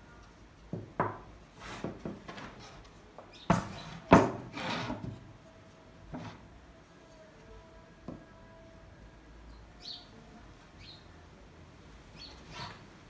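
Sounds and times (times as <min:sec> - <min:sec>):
wood knocking on a workbench: 0:00.7 - 0:02.5, 0:03.5 - 0:05.2.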